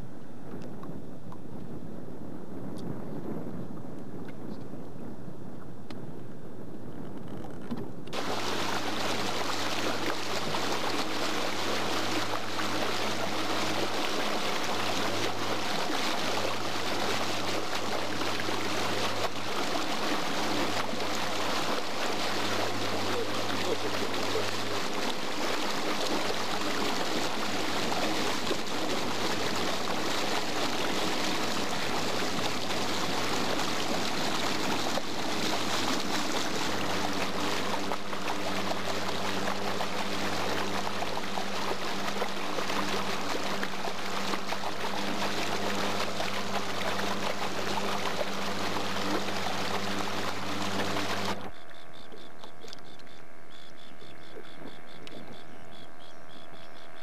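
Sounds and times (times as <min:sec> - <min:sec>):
low steady hum: 0:00.0 - 0:57.0
water rushing past boat: 0:07.2 - 0:51.6.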